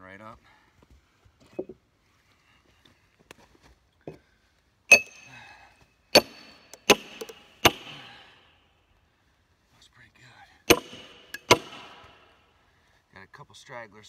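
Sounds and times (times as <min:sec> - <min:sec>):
sledgehammer striking steel wedge: 0:04.9 - 0:05.4, 0:06.2 - 0:08.2, 0:10.7 - 0:12.4.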